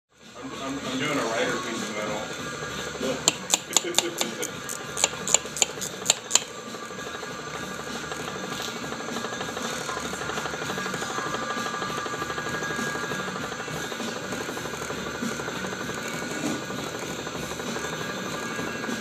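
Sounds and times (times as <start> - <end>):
metal lathe whirring: 0.7 - 19.0
drill cutting with rubbing hiss: 0.9 - 19.0
sharp clicks: 3.3 - 6.6.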